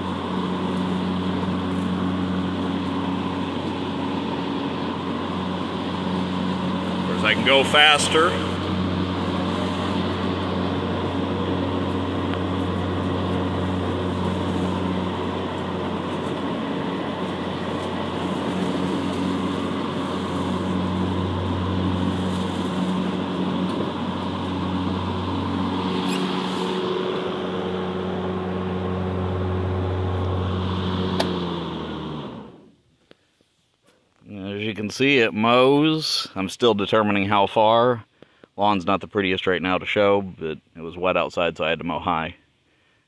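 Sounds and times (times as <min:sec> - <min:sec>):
electric mower motor hum: 0:00.0 - 0:32.8.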